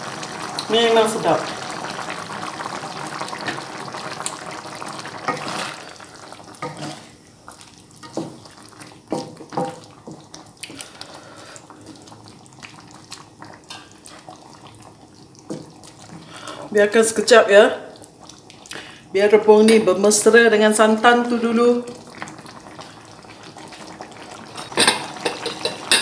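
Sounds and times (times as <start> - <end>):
curry bubbling in a wok: 0.0 - 19.4, 21.0 - 26.0
wooden spatula scraping a pan: 6.6 - 7.1.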